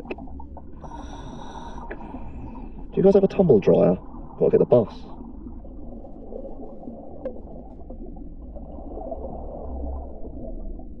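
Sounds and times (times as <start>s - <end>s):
low underwater rumble: 0.0s - 11.0s.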